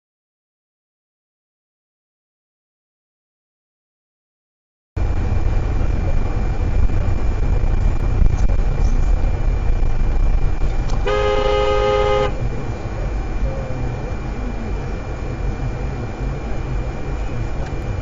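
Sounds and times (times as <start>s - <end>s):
road and engine rumble in car: 5.0s - 18.0s
car horn blaring: 10.9s - 12.6s.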